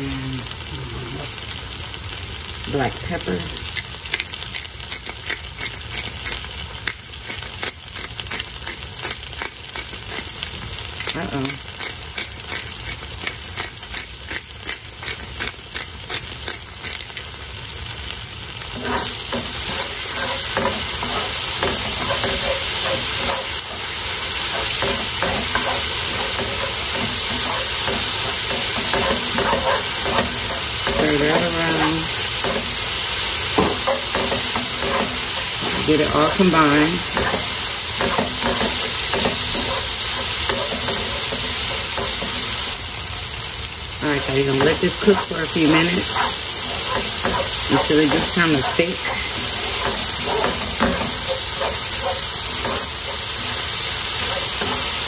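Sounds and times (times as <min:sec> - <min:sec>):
vegetables sizzling in butter: 0:00.0 - 0:55.0
pepper grinder clicking: 0:03.7 - 0:10.2, 0:11.0 - 0:17.3
spoon scraping pan: 0:18.8 - 0:42.7, 0:44.0 - 0:55.0.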